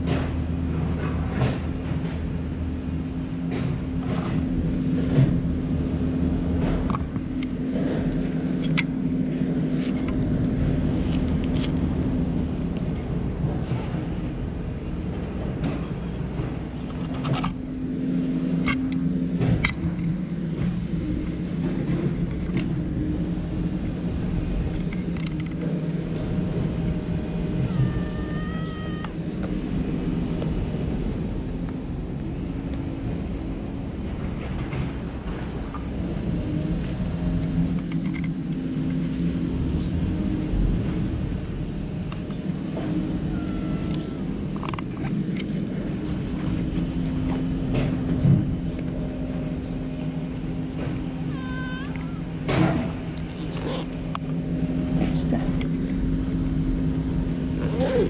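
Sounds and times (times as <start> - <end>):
low mechanical hum: 0.0 - 58.0
cat mewing: 27.6 - 29.4, 43.2 - 44.3, 51.2 - 54.0.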